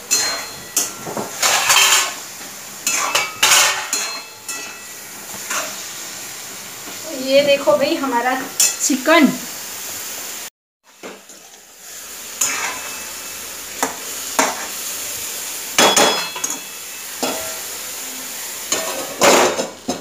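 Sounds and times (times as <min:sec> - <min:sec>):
chicken sizzling in oil: 0:00.0 - 0:20.0
spoon scraping metal pan: 0:00.1 - 0:02.2, 0:02.8 - 0:04.9, 0:12.4 - 0:13.1.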